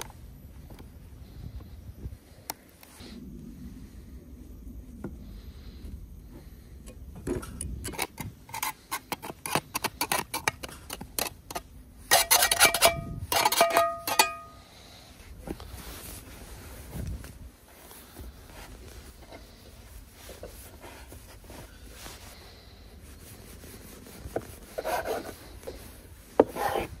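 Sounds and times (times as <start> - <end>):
knife scraping metal pan: 7.9 - 14.6.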